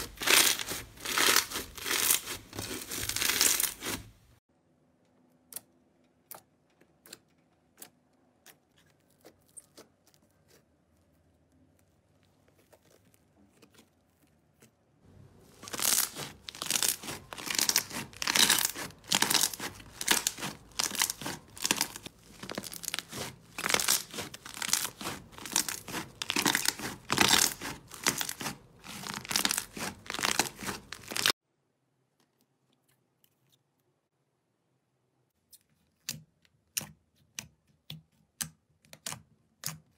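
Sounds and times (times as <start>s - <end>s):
slime crackling and popping: 0.0s - 4.0s, 15.5s - 31.3s.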